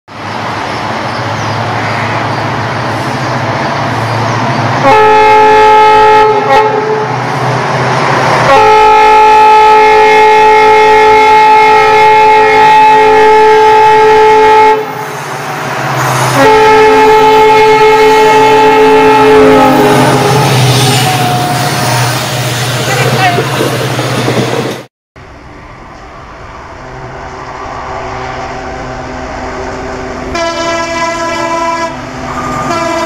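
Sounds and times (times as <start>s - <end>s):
diesel locomotive rumbling: 0.1s - 33.0s
multi-tone locomotive horn: 4.8s - 7.2s, 8.4s - 15.0s, 16.1s - 22.4s, 29.5s - 33.0s.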